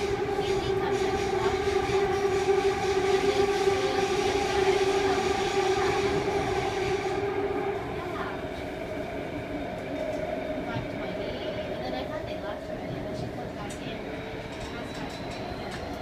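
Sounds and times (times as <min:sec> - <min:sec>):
train motor whine: 0:00.0 - 0:16.0
wheels rumbling on rails: 0:00.0 - 0:16.0.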